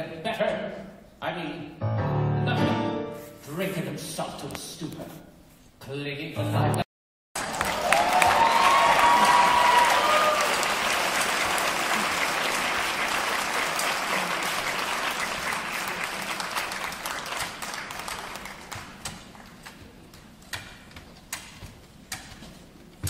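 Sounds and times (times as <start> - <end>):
audience applauding: 7.4 - 19.4.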